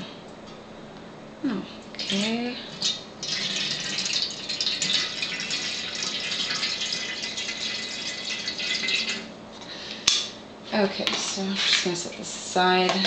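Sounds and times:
water pouring into a kettle: 2.8 - 9.3.

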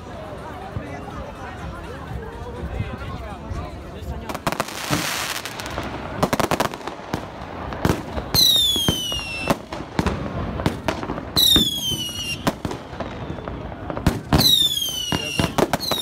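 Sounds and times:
firework bangs and pops: 4.3 - 16.0
whistling firework: 4.6 - 16.0.

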